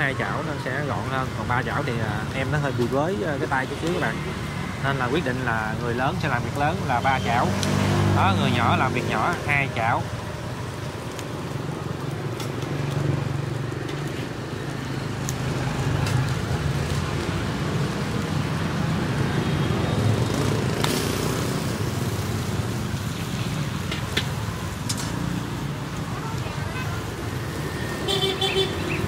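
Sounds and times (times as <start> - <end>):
passing traffic rumble: 0.0 - 29.0.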